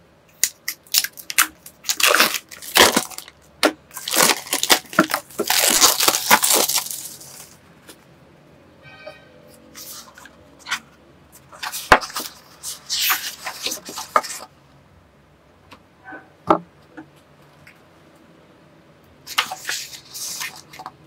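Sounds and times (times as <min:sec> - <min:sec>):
paper pages rustling: 0:11.5 - 0:14.5, 0:19.3 - 0:20.9.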